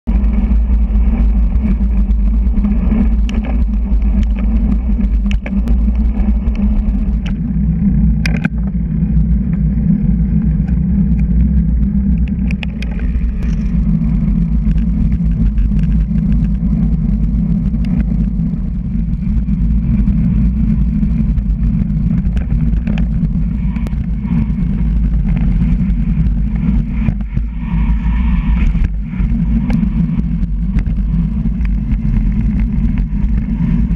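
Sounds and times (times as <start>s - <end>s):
bike clicks and rattles: 0.1s - 33.9s
wind buffeting microphone: 0.1s - 33.9s.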